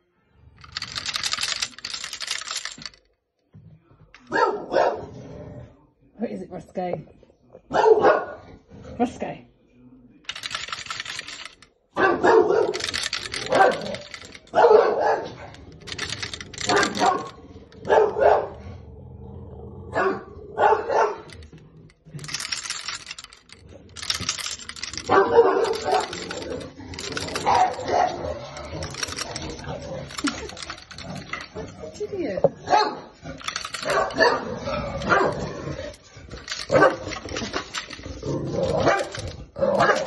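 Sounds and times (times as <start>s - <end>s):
coat hangers clattering: 0.6s - 3.1s, 10.3s - 11.7s, 12.6s - 14.6s, 15.4s - 18.0s, 21.2s - 32.4s, 33.3s - 40.0s
dogs barking: 4.2s - 5.2s, 7.7s - 8.6s, 10.4s - 18.7s, 19.9s - 21.5s, 22.2s - 31.6s, 32.5s - 37.6s, 38.6s - 40.0s.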